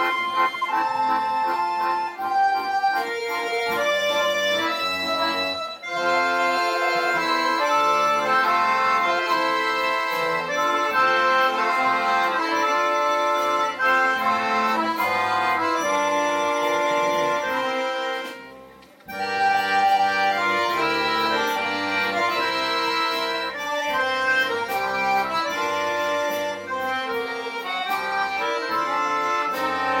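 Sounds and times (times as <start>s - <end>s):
accordion orchestra playing: 0.0s - 30.0s.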